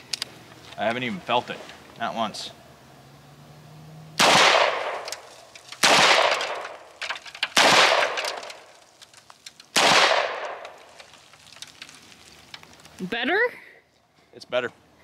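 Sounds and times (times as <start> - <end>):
pistol shots: 4.2 - 5.2, 5.8 - 6.8, 7.5 - 8.5, 9.7 - 10.7.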